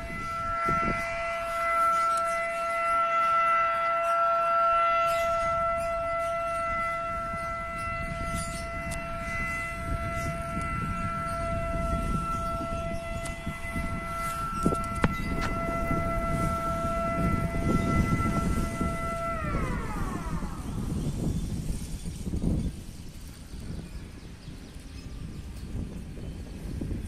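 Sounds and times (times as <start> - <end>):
warning siren steady tone: 0.0 - 27.0.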